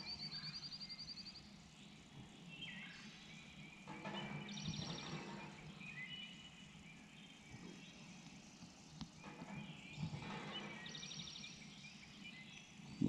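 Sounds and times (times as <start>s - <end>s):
songbirds singing: 0.0s - 13.0s
pump jack hum: 3.8s - 6.0s, 9.0s - 11.8s.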